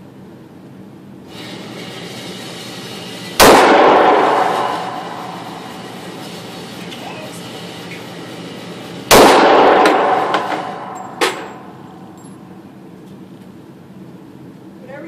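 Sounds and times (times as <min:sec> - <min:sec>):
handgun shot echoing indoors: 0:03.4 - 0:05.2, 0:09.1 - 0:12.1.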